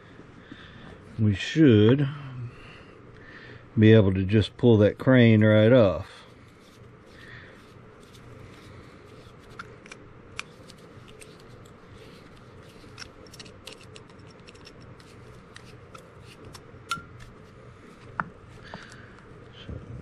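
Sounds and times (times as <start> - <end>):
screwdriver clicking and scraping: 9.2 - 16.6.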